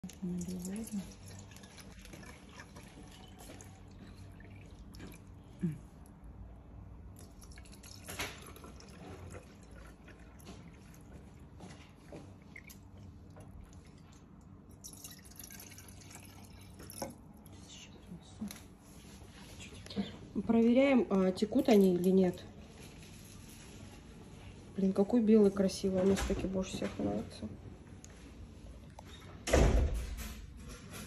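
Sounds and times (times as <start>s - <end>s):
water dripping: 0.0s - 5.4s, 7.2s - 17.2s
water pouring in thin stream: 0.0s - 5.4s, 7.2s - 11.4s, 13.6s - 17.2s.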